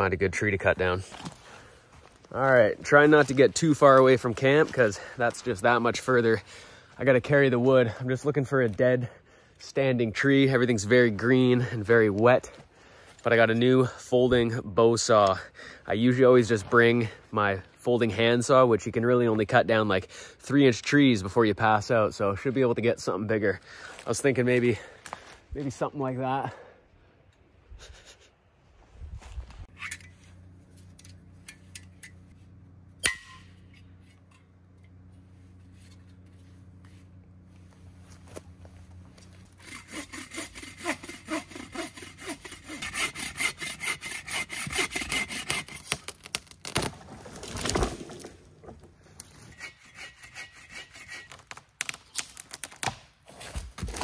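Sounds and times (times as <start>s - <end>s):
saw cutting tree trunk: 38.4s - 48.5s, 49.2s - 54.0s.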